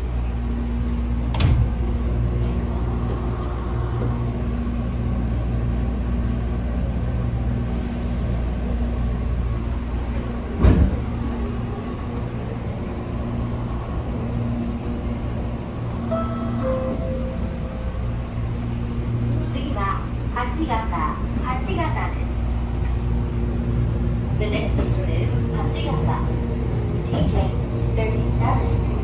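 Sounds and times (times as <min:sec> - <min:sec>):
train car rumble: 0:00.0 - 0:29.0
thump: 0:10.6 - 0:11.0.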